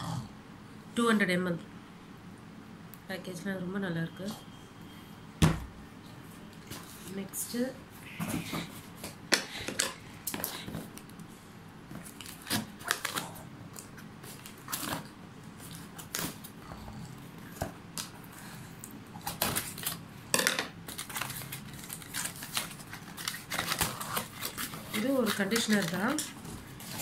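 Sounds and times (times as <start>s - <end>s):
cardboard and tape ripping: 11.9s - 13.4s, 14.2s - 16.5s, 20.9s - 27.0s.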